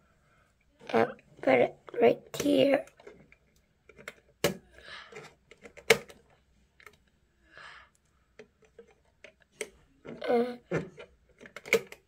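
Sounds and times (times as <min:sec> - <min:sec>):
hard plastic parts clicking: 0:02.3 - 0:07.0, 0:08.4 - 0:12.0.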